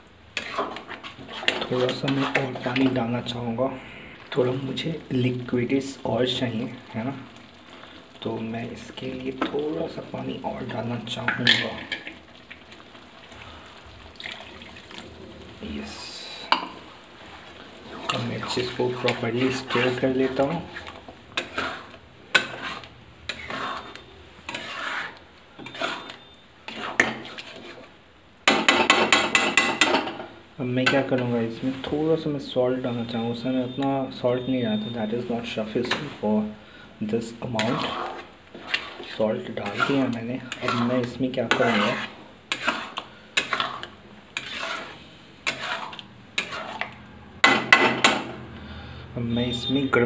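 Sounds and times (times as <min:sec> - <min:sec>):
steel spoon scraping a pan: 0:00.3 - 0:06.8, 0:15.7 - 0:48.3.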